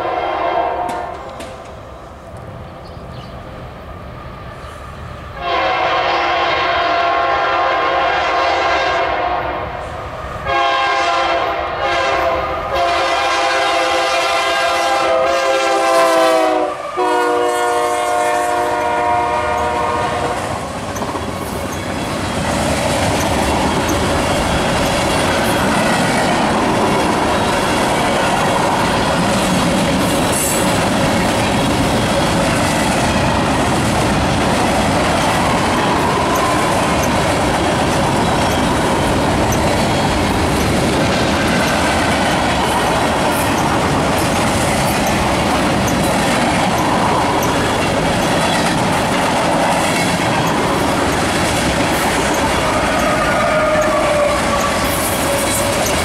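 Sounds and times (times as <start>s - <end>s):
locomotive air horn blasts: 0.0s - 1.3s, 5.4s - 9.6s, 10.4s - 20.5s
freight cars rumbling: 18.5s - 56.0s
wheels clacking over rail joints: 18.5s - 56.0s.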